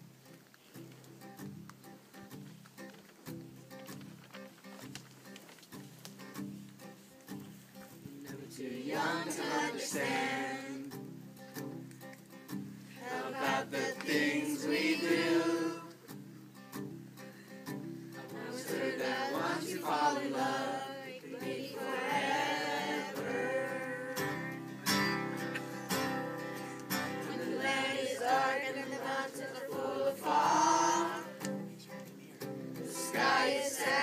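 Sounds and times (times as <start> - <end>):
acoustic guitar: 0.0 - 34.0
children singing: 8.6 - 10.8, 13.0 - 15.9, 18.4 - 24.5, 27.1 - 31.4, 32.8 - 34.0.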